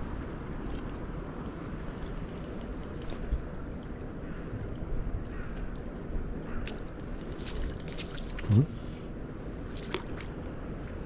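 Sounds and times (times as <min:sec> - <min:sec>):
faint high clicks: 0:01.8 - 0:03.2.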